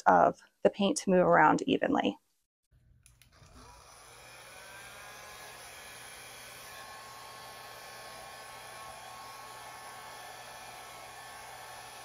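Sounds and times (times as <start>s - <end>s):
hair dryer blowing: 3.1s - 12.0s.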